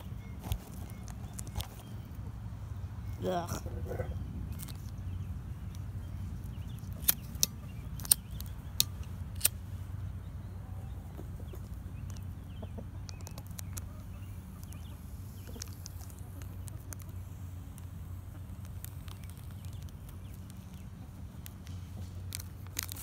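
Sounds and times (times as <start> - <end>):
chickens clucking: 0.0 - 4.8, 10.1 - 22.3
sharp clicks: 4.5 - 9.6, 13.0 - 23.0.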